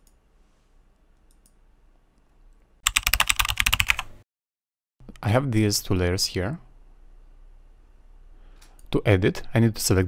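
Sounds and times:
soft clicks: 1.0 - 2.7
keyboard typing: 2.8 - 4.1.

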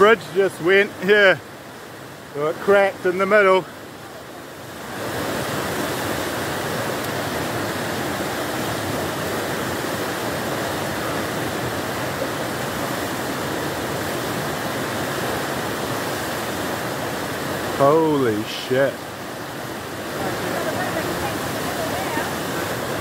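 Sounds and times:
floodwater rushing: 0.0 - 23.0.

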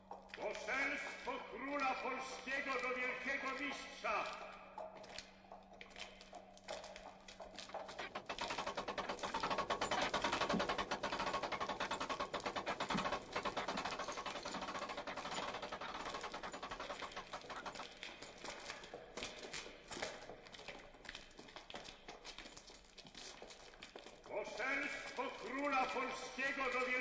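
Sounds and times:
portcullis rattling: 6.3 - 20.4, 24.1 - 27.0.

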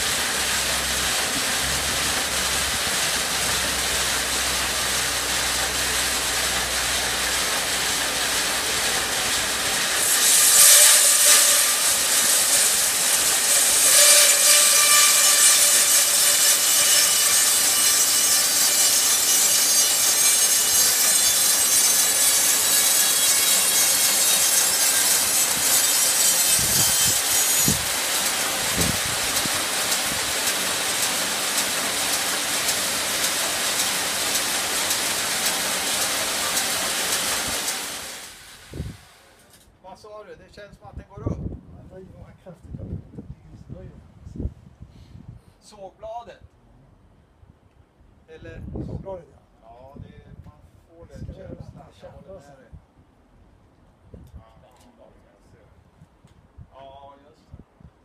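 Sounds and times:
band saw humming: 0.0 - 39.0
saw blade hissing through wood: 0.0 - 39.3.

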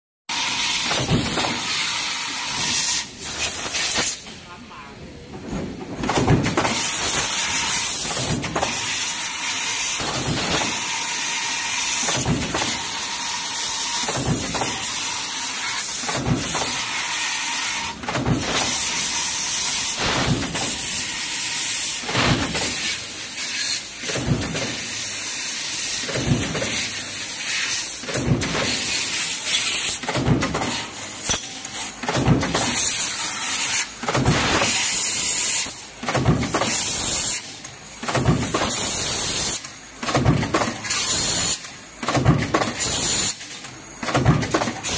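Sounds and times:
punch press stamping metal: 0.6 - 1.9, 5.5 - 13.0, 13.7 - 15.1, 15.7 - 23.0, 24.0 - 25.0, 26.0 - 27.0, 27.8 - 33.0, 33.7 - 37.4, 38.0 - 44.9.

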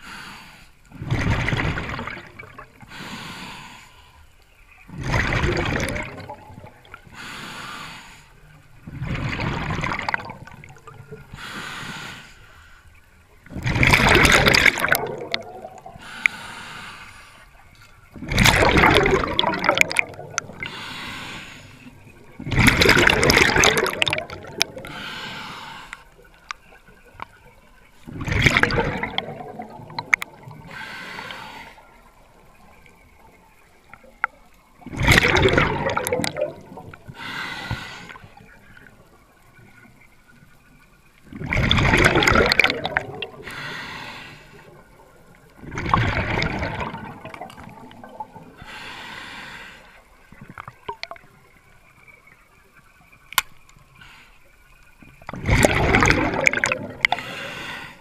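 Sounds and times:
exhaled bubbles rushing: 0.9 - 2.8, 4.9 - 7.0, 8.8 - 11.3, 13.4 - 16.1, 18.1 - 20.8, 21.9 - 25.0, 28.0 - 30.8, 31.8 - 37.2, 41.3 - 43.5, 44.6 - 48.6, 50.3 - 52.2, 55.2 - 57.3
diver inhaling through regulator: 7.1 - 8.4, 11.3 - 12.9, 15.9 - 17.5, 20.6 - 22.0, 24.6 - 26.2, 30.6 - 32.0, 37.1 - 38.2, 43.4 - 44.8, 48.6 - 50.0, 57.0 - 58.0.

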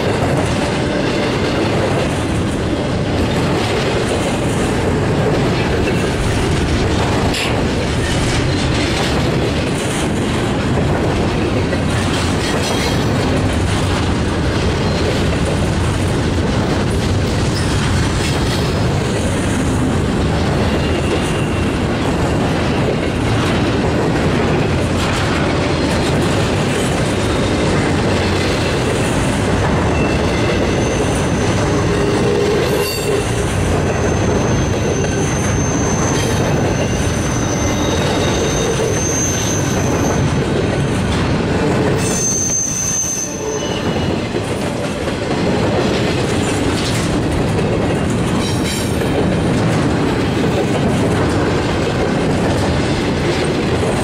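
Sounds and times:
steel wheels rumbling on rail: 0.0 - 54.0
high-pitched wheel squeals: 34.0 - 40.3, 42.0 - 44.2.

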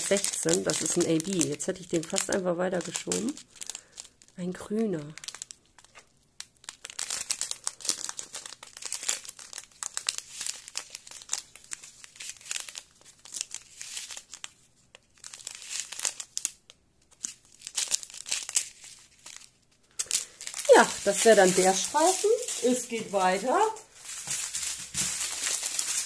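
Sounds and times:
plastic packets crinkling: 0.0 - 26.0.

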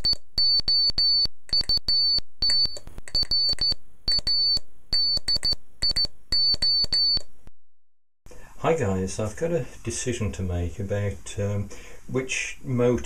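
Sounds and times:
morse code beeps: 0.0 - 7.3.

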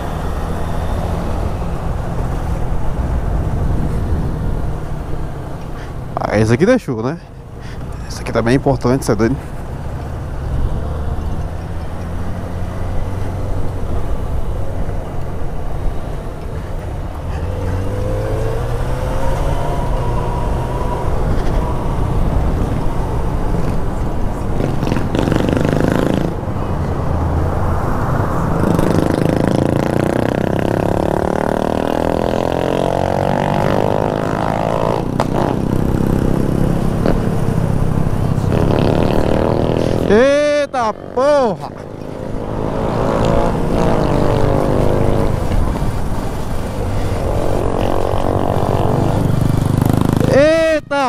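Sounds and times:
motorcycle engine accelerating: 0.0 - 5.5, 17.3 - 26.5, 28.4 - 50.8
wind rushing over microphone: 0.0 - 6.2, 12.8 - 40.3, 41.8 - 50.3.

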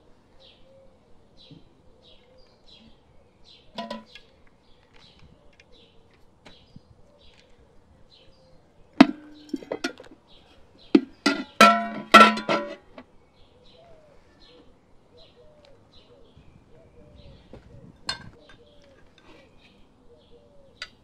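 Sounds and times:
metal cookware clanking: 9.0 - 10.1, 11.0 - 12.9.

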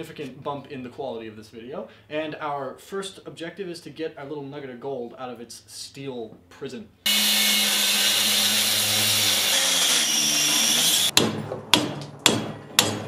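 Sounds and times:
angle grinder cutting steel: 7.1 - 11.1
sharp knocks: 11.1 - 13.0.

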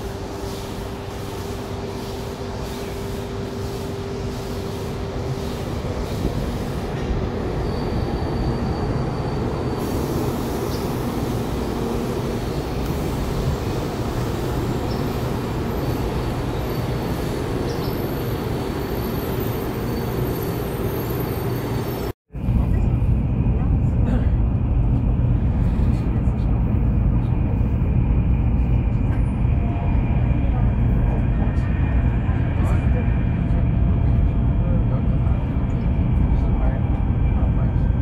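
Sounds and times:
train rushing rumble: 0.0 - 38.0.

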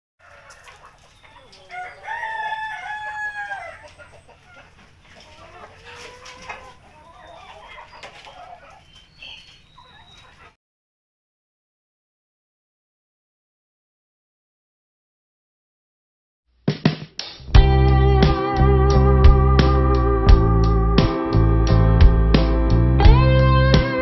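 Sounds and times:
rooster crowing: 0.2 - 4.1
hens clucking: 0.2 - 10.6.

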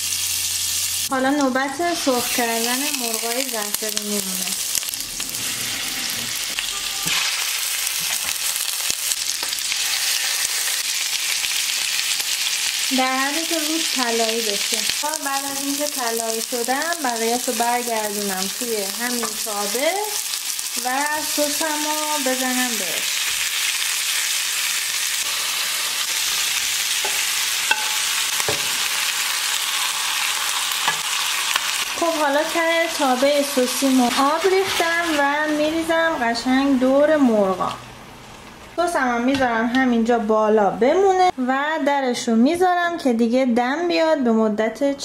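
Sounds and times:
chicken sizzling in hot oil: 0.0 - 37.1
sauce being stirred: 26.0 - 29.0
utensil knocking on pan: 27.0 - 28.8.

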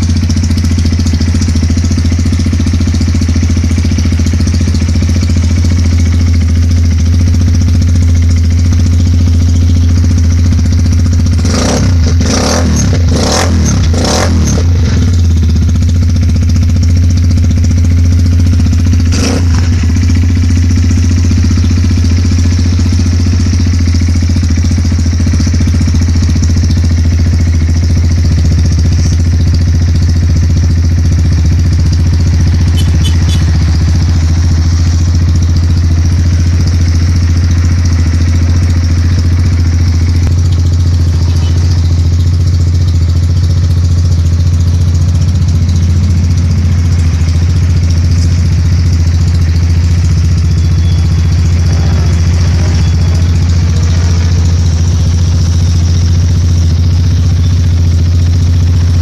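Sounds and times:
motorcycle engine idling: 0.0 - 59.0.

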